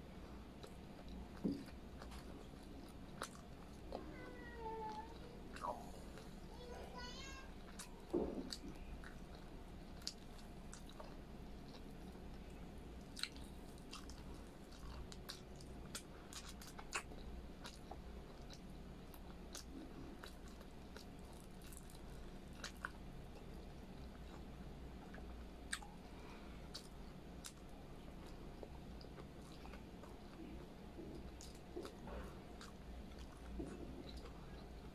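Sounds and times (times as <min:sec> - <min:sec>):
faint low hum: 0:00.0 - 0:34.9
chewing and mouth clicks: 0:00.5 - 0:04.1, 0:07.6 - 0:26.1, 0:26.7 - 0:34.9.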